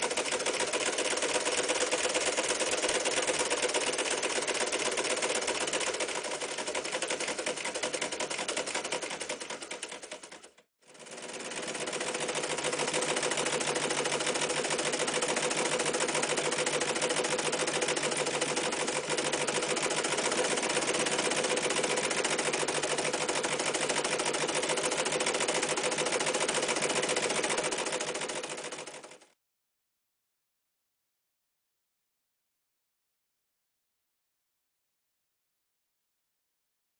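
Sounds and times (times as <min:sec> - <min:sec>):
sewing machine chatter: 0:00.0 - 0:29.4.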